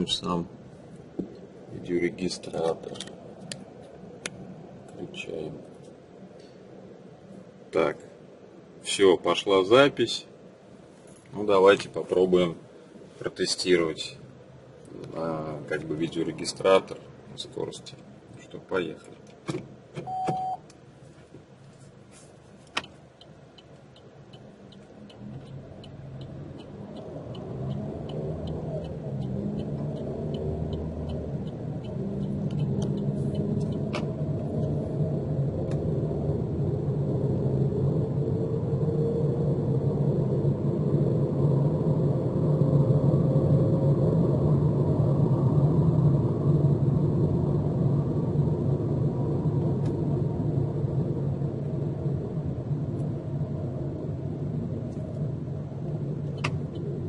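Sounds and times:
road noise: 0:00.0 - 0:57.0
short beep: 0:20.0 - 0:20.6
light ticking: 0:22.8 - 0:34.8
car engine accelerating: 0:23.9 - 0:57.0.

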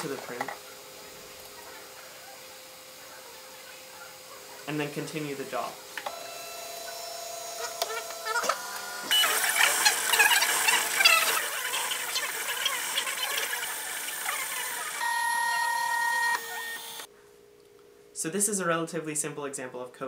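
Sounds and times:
printer stepper motors whining: 0:06.0 - 0:17.1.

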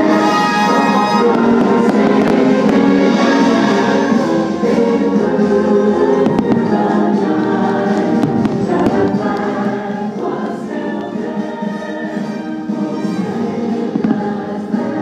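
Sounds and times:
choir singing held notes: 0:00.0 - 0:15.0
music: 0:00.0 - 0:15.0
faint firework bangs: 0:08.0 - 0:09.2, 0:13.9 - 0:14.5.

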